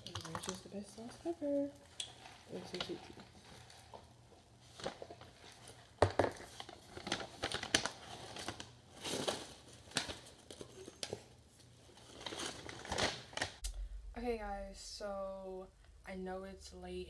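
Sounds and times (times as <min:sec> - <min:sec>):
paper bag crinkling: 0:04.7 - 0:13.6.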